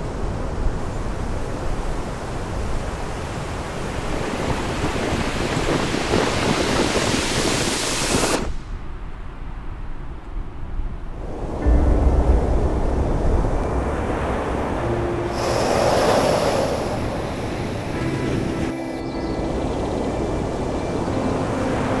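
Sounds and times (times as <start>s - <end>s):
faint low rumble: 11.0s - 15.3s
rushing noise: 11.1s - 22.0s.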